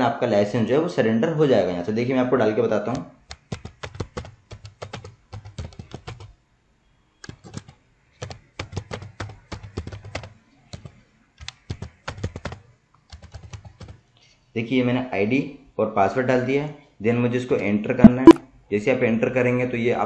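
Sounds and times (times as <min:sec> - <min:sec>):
computer keyboard typing: 0:03.3 - 0:06.3, 0:07.2 - 0:14.0.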